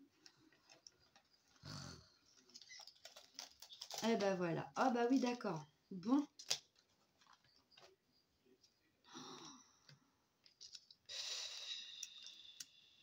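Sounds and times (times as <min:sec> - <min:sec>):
breathy sigh: 0:09.1 - 0:10.0.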